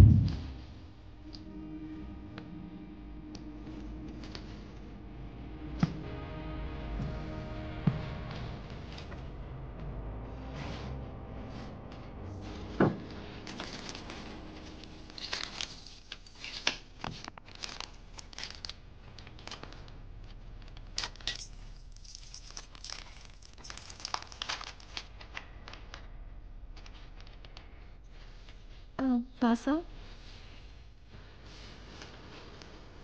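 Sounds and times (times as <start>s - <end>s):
paper wrappers tearing and crinkling: 13.4s - 19.9s, 20.7s - 25.8s.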